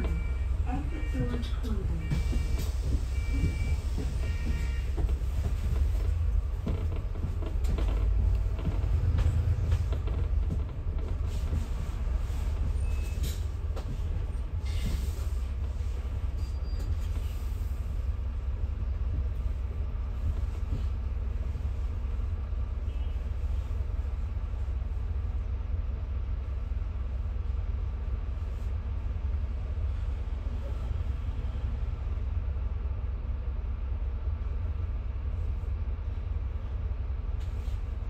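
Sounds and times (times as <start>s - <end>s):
bus engine and tyre rumble: 0.0s - 38.0s
bodywork rattles and knocks: 2.1s - 15.8s.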